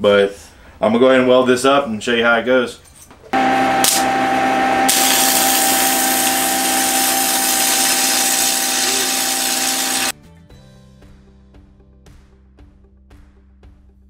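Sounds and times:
steady hum: 0:03.4 - 0:10.1
welding arc hissing and crackling: 0:04.9 - 0:10.1.

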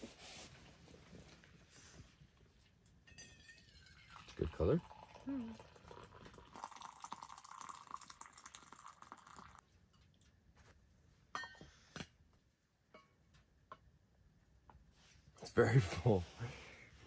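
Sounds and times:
coffee pouring into metal cup: 0:03.2 - 0:09.6.

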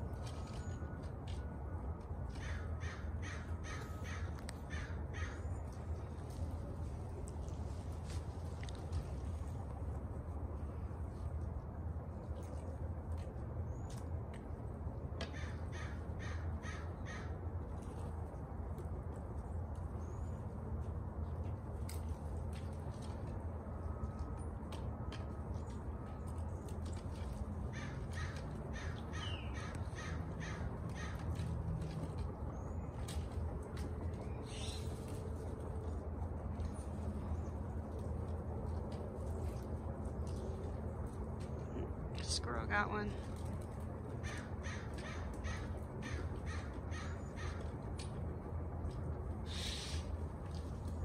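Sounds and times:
crow calling: 0:02.3 - 0:05.8, 0:15.2 - 0:17.4, 0:27.7 - 0:32.0, 0:44.1 - 0:47.8.

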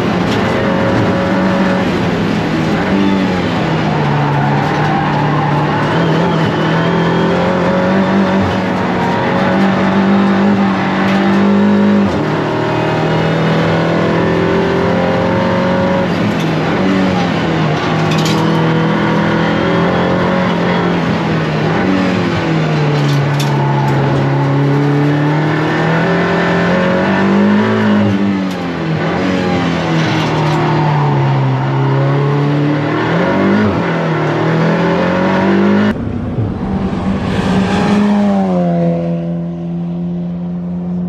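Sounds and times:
race car engine through gear changes: 0:00.0 - 0:41.0
race car passing by: 0:35.6 - 0:40.4.

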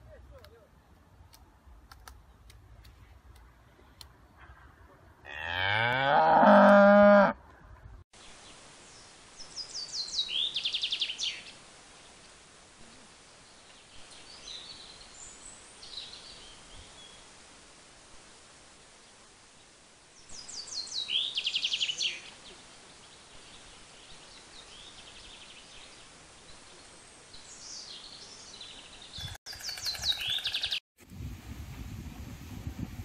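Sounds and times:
cow mooing: 0:05.3 - 0:07.4.

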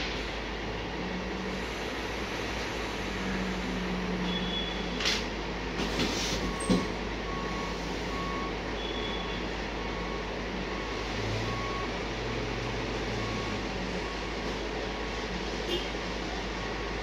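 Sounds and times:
heavy truck engine running: 0:00.0 - 0:17.0
reversing alarm beeping: 0:04.1 - 0:05.0, 0:06.4 - 0:14.6.

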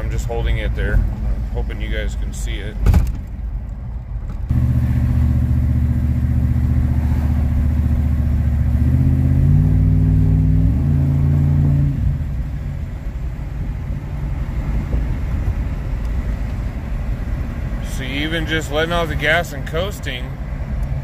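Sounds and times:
car engine droning under throttle: 0:04.4 - 0:19.2.

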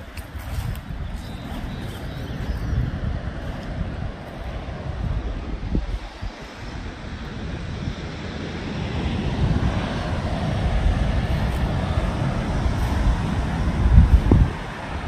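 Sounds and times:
wind buffeting microphone: 0:00.0 - 0:15.0
surf breaking on beach: 0:03.0 - 0:15.0.

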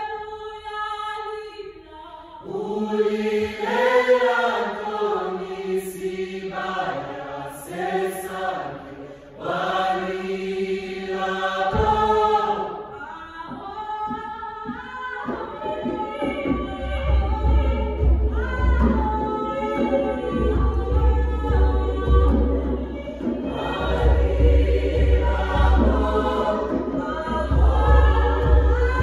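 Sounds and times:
choir singing in parts: 0:02.4 - 0:29.0
singers breathing: 0:09.0 - 0:09.4.

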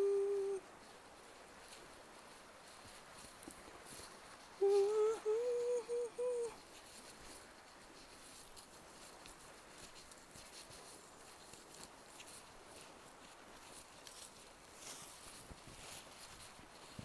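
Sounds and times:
person humming: 0:00.0 - 0:00.7, 0:04.6 - 0:06.6
faint footsteps on dirt: 0:00.0 - 0:05.4, 0:06.5 - 0:17.0.

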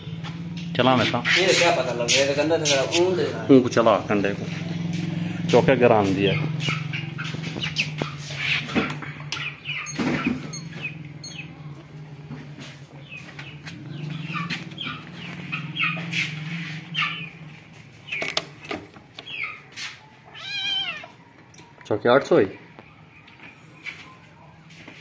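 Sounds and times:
high-pitched chirping calls: 0:06.2 - 0:11.7, 0:12.9 - 0:18.6, 0:19.2 - 0:21.8.

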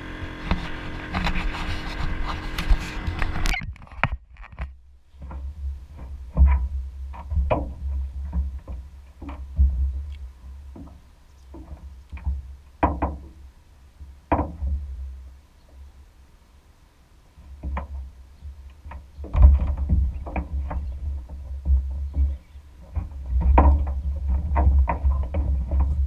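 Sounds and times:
low steady rumble: 0:00.0 - 0:26.0
knocks and thumps on boat deck: 0:05.2 - 0:10.1, 0:10.7 - 0:13.4, 0:14.3 - 0:14.9, 0:17.6 - 0:26.0.

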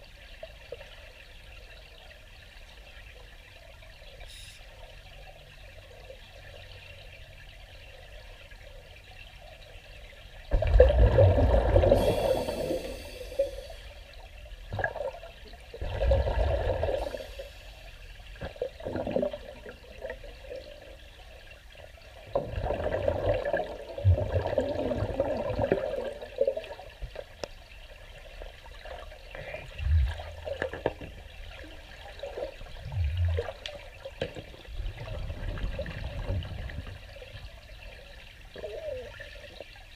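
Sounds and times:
air bubbling underwater: 0:10.5 - 0:13.9, 0:15.8 - 0:17.4, 0:22.4 - 0:26.3, 0:29.7 - 0:31.2, 0:32.6 - 0:37.1.

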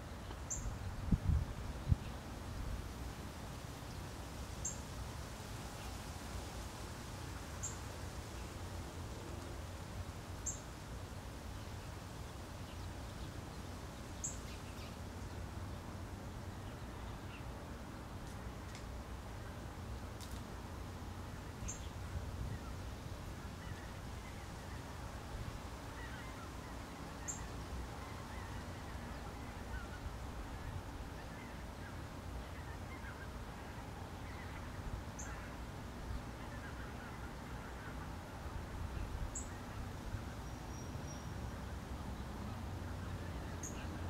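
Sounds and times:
rain hiss: 0:00.0 - 0:17.0.

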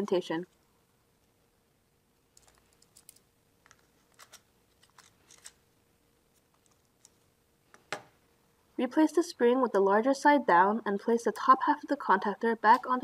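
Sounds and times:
plastic parts clicking: 0:02.4 - 0:05.6.

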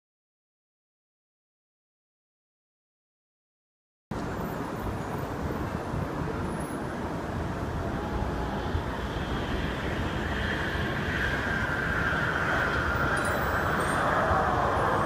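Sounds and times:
street traffic rumble and hiss: 0:04.1 - 0:15.0.

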